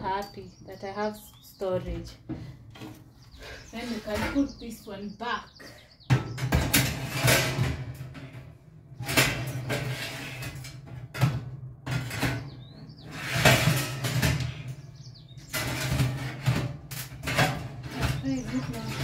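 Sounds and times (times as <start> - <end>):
metal tray scraping oven runners: 3.6 - 4.6, 6.4 - 19.0.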